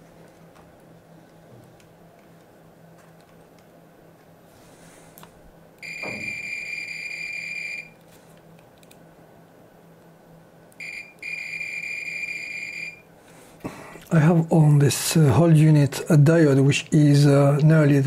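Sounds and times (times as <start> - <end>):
high-pitched electronic beeps: 5.8 - 7.9.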